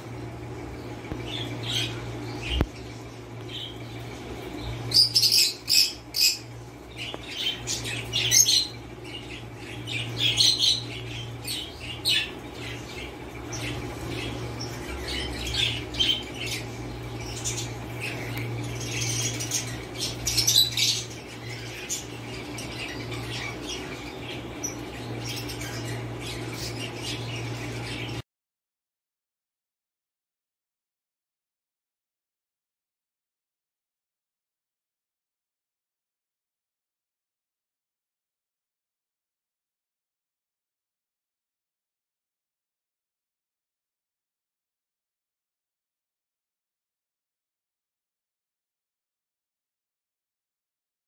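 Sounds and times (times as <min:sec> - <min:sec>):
steady low hum: 0:00.0 - 0:28.2
lovebirds chirping: 0:00.6 - 0:28.2.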